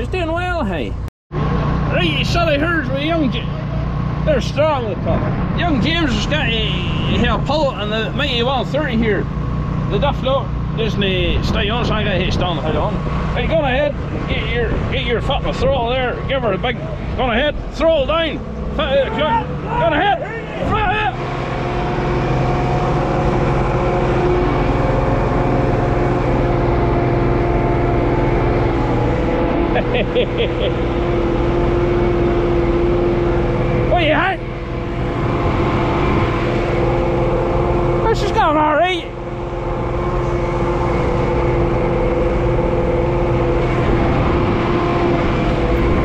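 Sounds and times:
tractor engine under heavy load: 0:00.0 - 0:46.0.

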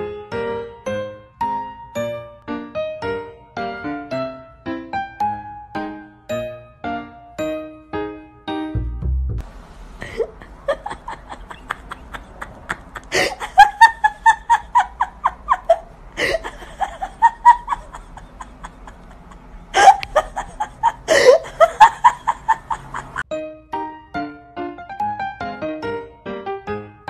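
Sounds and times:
person laughing hard: 0:10.0 - 0:23.2.

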